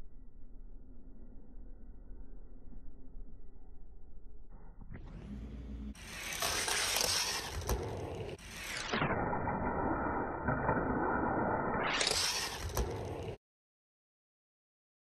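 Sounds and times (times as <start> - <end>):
toy cars rolling on a desk mat: 5.9 - 9.0, 10.0 - 13.4.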